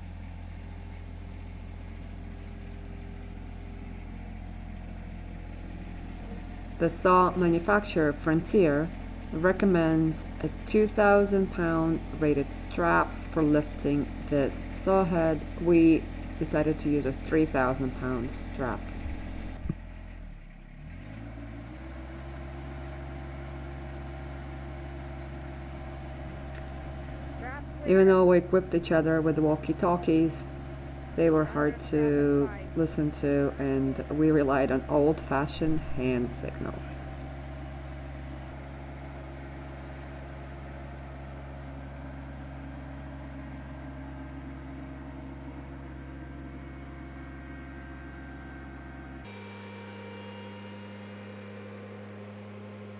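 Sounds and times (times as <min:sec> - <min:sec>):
tractor engine running: 0:00.0 - 0:52.9.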